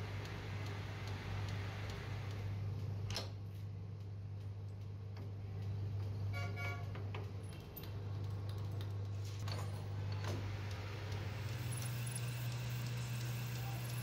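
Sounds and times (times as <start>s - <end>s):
metal lathe humming: 10.7s - 14.0s.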